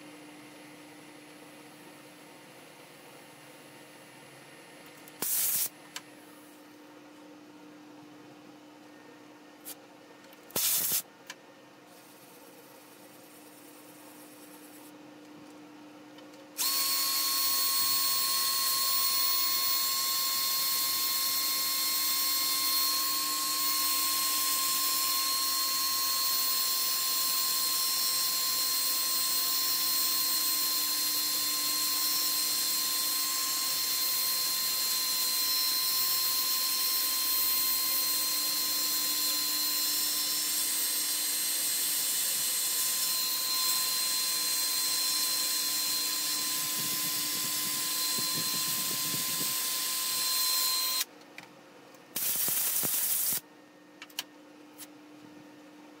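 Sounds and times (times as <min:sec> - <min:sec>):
cordless drill sanding wood: 0:16.6 - 0:51.0.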